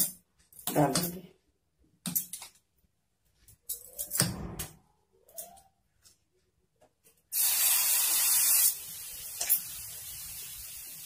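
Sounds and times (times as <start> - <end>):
batter sizzling on hot griddle: 7.4 - 11.0.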